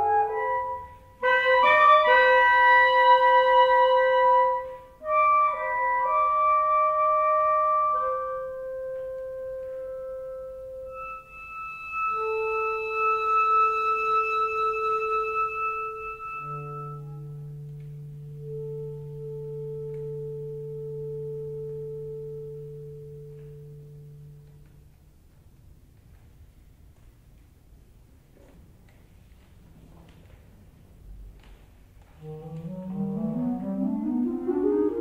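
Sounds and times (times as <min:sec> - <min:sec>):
clarinets playing long notes: 0:00.0 - 0:24.6, 0:32.2 - 0:35.0.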